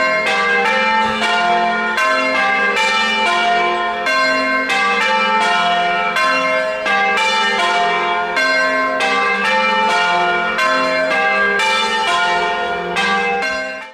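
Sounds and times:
church bells ringing: 0:00.0 - 0:13.9.

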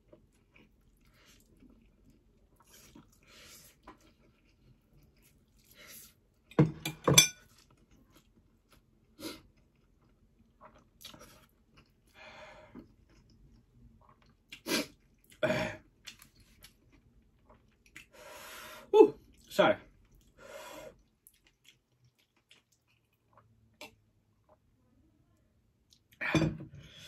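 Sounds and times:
open-mouthed chewing: 0:00.0 - 0:06.4, 0:19.2 - 0:24.6.

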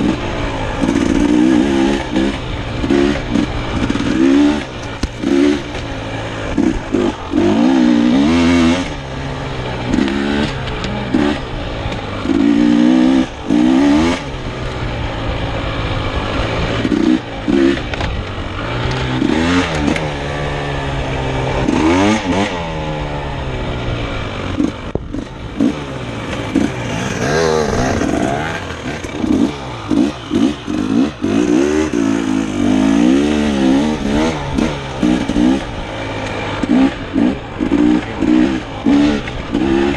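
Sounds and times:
dirt bike engine revving: 0:00.0 - 0:39.9
bike rattles and knocks: 0:00.8 - 0:08.3.

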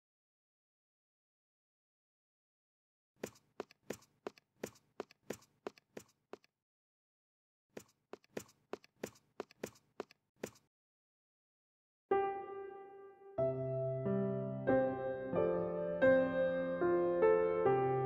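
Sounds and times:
hard-soled footsteps: 0:03.2 - 0:06.5, 0:07.8 - 0:10.6.

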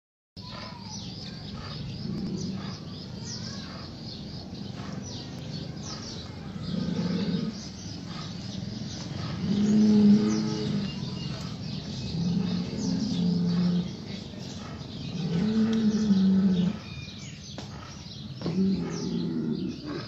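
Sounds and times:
small birds chirping: 0:00.4 - 0:20.0
low animal groan: 0:01.5 - 0:04.0, 0:04.7 - 0:17.0, 0:17.7 - 0:20.0.

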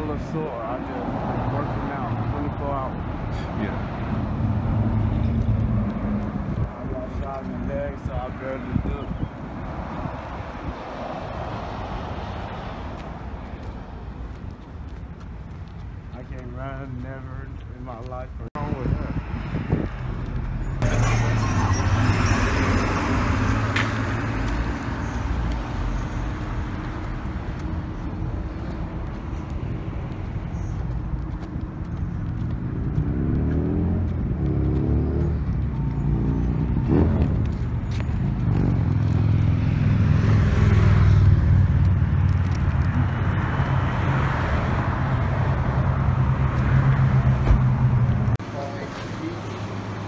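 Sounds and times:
street traffic rumble: 0:00.0 - 0:50.0
vehicle engine accelerating: 0:03.6 - 0:07.4, 0:19.2 - 0:48.4.

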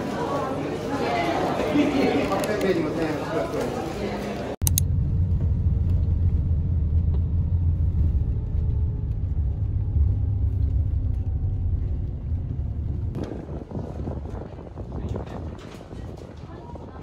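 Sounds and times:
vehicle rumble from inside: 0:04.6 - 0:13.5.

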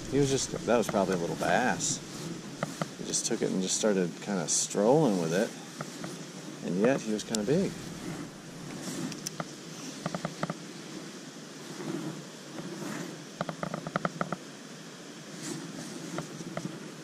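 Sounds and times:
low background rush: 0:00.0 - 0:12.5.

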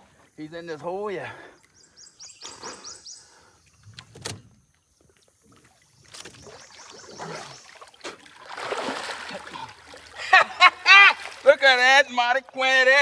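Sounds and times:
water sloshing and splashing: 0:03.6 - 0:11.8.

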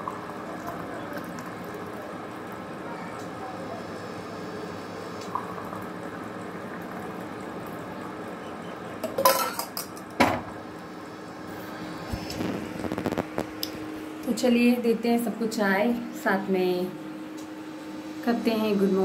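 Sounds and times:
tea pouring: 0:00.0 - 0:02.8, 0:05.2 - 0:09.2.

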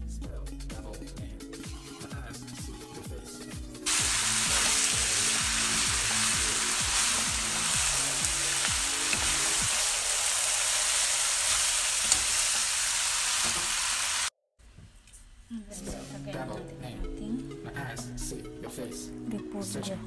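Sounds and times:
background music with a beat: 0:00.0 - 0:09.8
spatulas tossing food: 0:03.9 - 0:14.0
food sizzling in a hot pan: 0:03.9 - 0:14.3.

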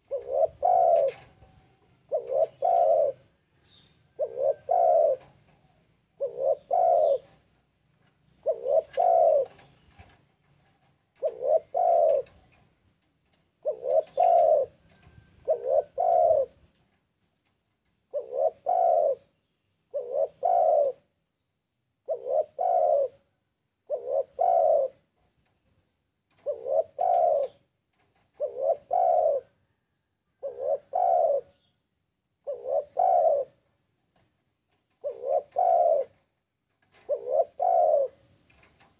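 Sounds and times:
dove cooing: 0:00.0 - 0:12.6, 0:13.5 - 0:16.7, 0:18.1 - 0:21.1, 0:22.0 - 0:25.2, 0:26.3 - 0:31.8, 0:32.4 - 0:33.8, 0:34.9 - 0:38.8.

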